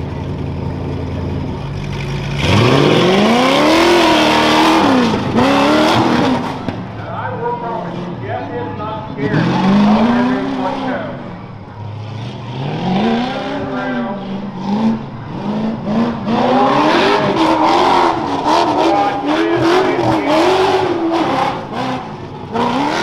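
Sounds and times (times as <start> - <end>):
buggy engine revving: 0.0 - 23.0.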